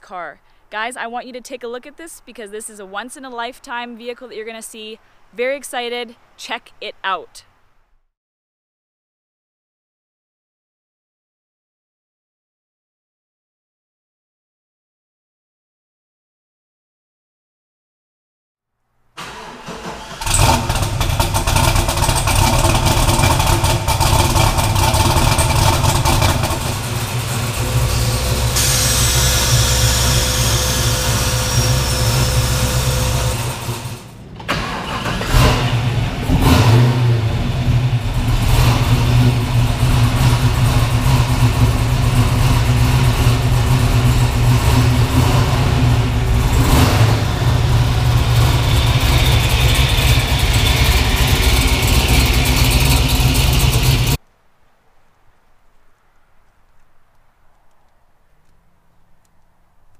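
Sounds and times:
car engine starting and idling: 0:19.2 - 0:54.2
engine revving: 0:19.2 - 0:54.2.

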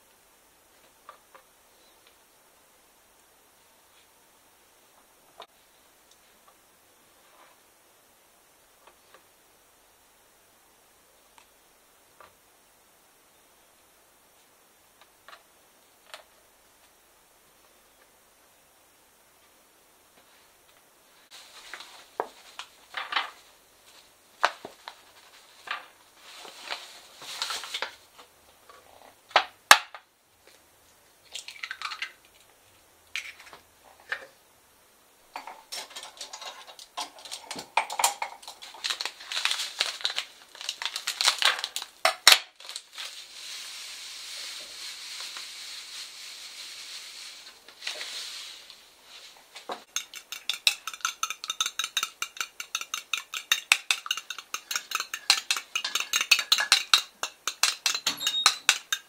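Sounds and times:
steady hiss: 0:00.0 - 0:31.4, 0:42.7 - 0:52.6
dishes and cutlery clinking: 0:49.9 - 0:59.0
fork beating egg in bowl: 0:49.9 - 0:59.0.

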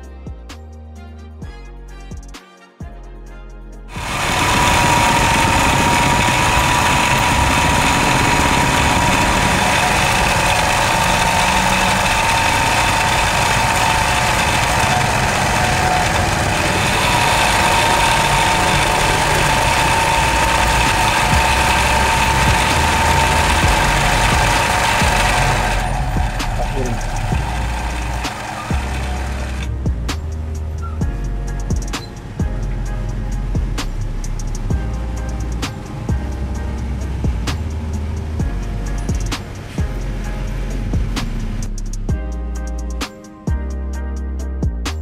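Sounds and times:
music notes: 0:03.8 - 0:45.0
sewing machine clatter and whine: 0:03.9 - 0:30.4.

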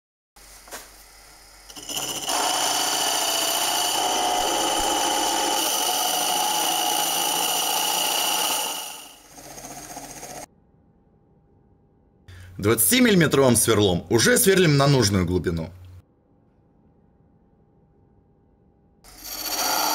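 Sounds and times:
wood lathe boring high-pitched whine: 0:01.7 - 0:10.5, 0:19.1 - 0:19.9.

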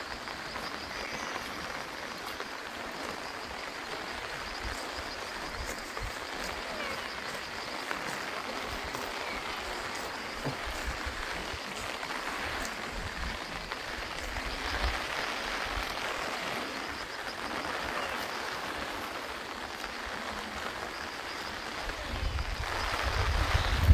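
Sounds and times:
rain hissing: 0:00.0 - 0:23.9
wind buffeting microphone: 0:08.4 - 0:16.0, 0:21.8 - 0:23.9.

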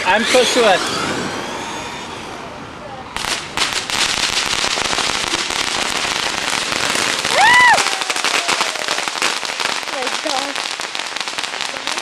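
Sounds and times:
firework crackling with rapid pops: 0:03.2 - 0:12.0.

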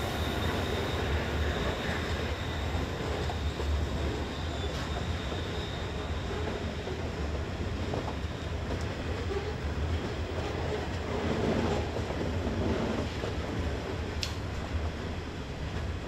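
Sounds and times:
distant diesel locomotives rumbling: 0:00.0 - 0:16.0
short sharp click: 0:14.2 - 0:14.4.

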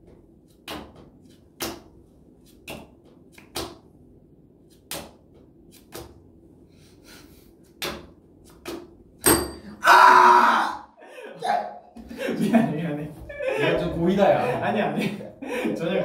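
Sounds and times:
playing cards slapped on table: 0:00.5 - 0:03.9, 0:04.7 - 0:06.2, 0:07.8 - 0:09.0.

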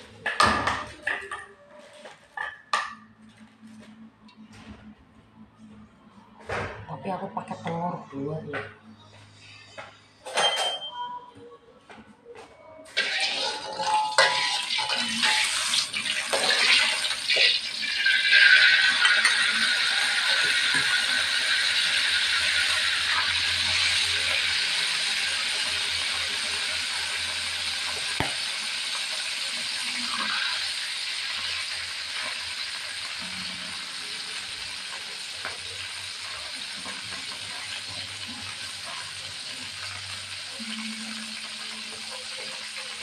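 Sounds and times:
eggs sizzling in hot oil: 0:13.0 - 0:43.0.

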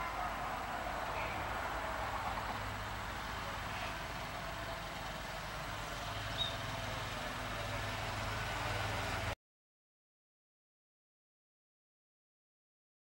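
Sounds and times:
high bird chirp: 0:06.2 - 0:06.6.

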